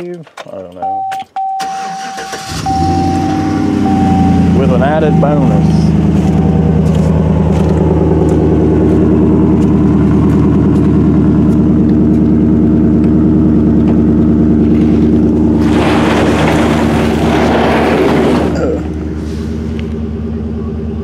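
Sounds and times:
pickup engine running: 0:01.6 - 0:21.0
rushing noise: 0:14.6 - 0:19.9.

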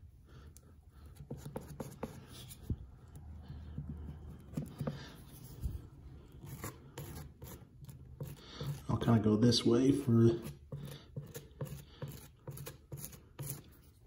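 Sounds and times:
knife scraping caulk on wall: 0:01.0 - 0:05.2, 0:06.3 - 0:09.1, 0:10.0 - 0:13.9.

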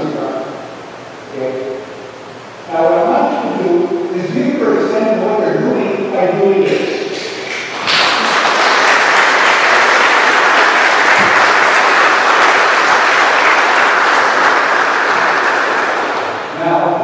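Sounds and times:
congregation applauding: 0:07.4 - 0:16.6.

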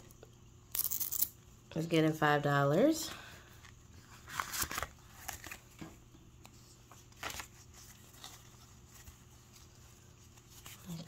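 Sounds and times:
paper bills rustling: 0:04.0 - 0:05.7
plastic envelope crinkling: 0:04.0 - 0:05.9.

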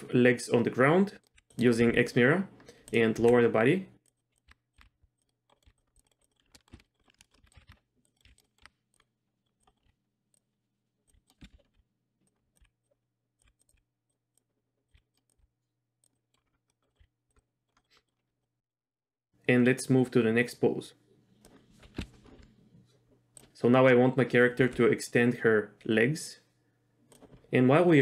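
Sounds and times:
keyboard and mouse clicks: 0:01.2 - 0:18.2, 0:23.3 - 0:23.6, 0:27.1 - 0:27.5.

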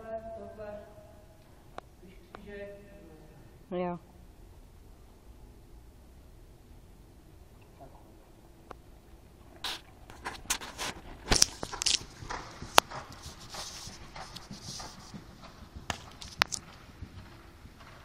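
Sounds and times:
horse hoofbeats on sand: 0:10.0 - 0:18.0.

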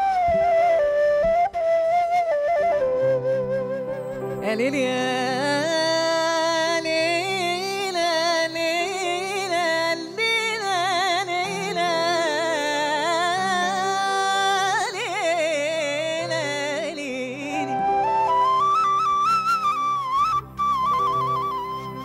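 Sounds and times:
instrumental backing music: 0:00.0 - 0:22.0
woman singing: 0:04.4 - 0:18.3.

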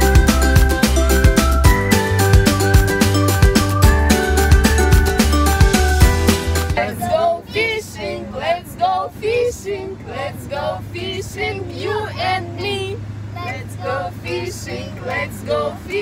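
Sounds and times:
car hum: 0:00.0 - 0:16.0
women and children singing: 0:06.7 - 0:16.0.

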